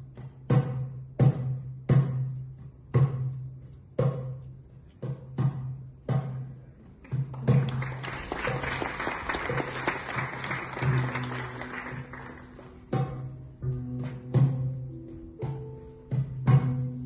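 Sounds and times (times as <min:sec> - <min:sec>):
performance music with drum beats: 0:00.0 - 0:17.0
audience applauding: 0:07.0 - 0:12.9.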